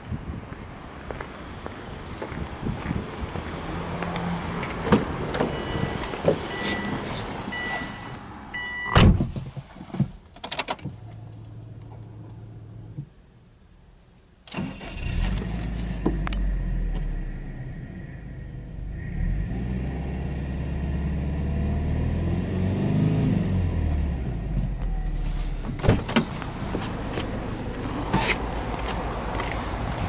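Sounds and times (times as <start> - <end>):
warning chime beeping: 5.5 - 9.0
car door thud: 8.9 - 9.5, 25.6 - 26.3
car engine starting and idling: 14.4 - 30.0.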